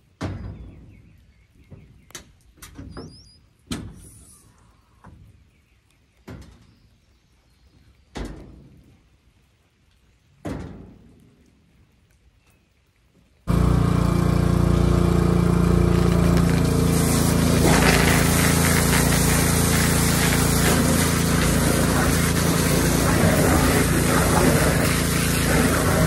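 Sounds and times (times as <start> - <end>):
pressure washer engine running: 13.5 - 26.0
spray jet hissing: 14.8 - 26.0.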